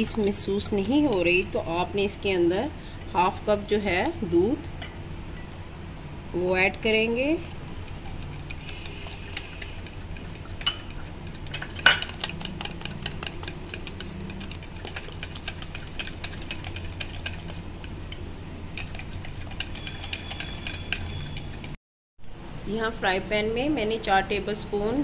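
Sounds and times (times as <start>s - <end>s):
liquid sloshing: 7.5s - 17.7s
spoon clinking on glass bowl: 10.6s - 12.4s.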